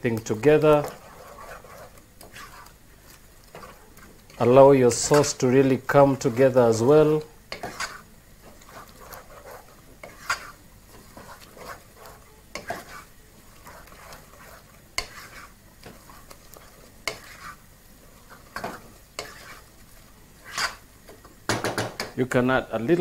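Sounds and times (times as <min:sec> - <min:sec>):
wooden spoon scraping a pot: 0:00.0 - 0:21.3
sauce sizzling: 0:00.0 - 0:23.0.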